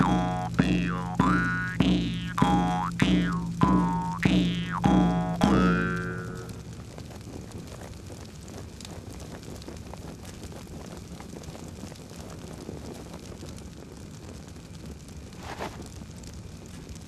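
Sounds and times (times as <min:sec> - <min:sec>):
low steady rumble: 0:00.0 - 0:08.4
fire crackling and popping: 0:00.0 - 0:17.0.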